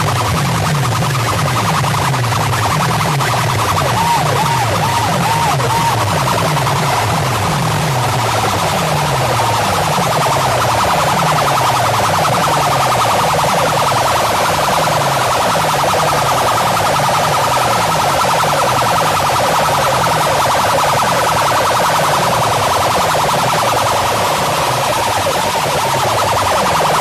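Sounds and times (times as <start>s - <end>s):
harsh pulsing buzz: 0.0s - 18.3s
falling siren tone: 0.0s - 27.0s.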